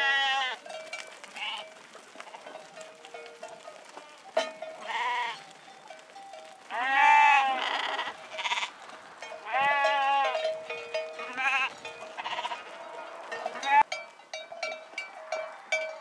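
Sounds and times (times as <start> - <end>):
sheep and goats bleating: 0.0 - 16.0.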